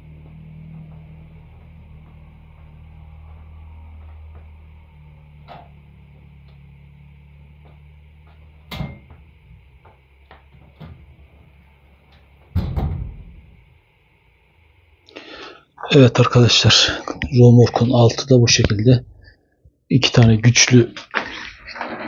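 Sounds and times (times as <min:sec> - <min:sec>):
metal bed clunking: 0:12.5 - 0:13.4.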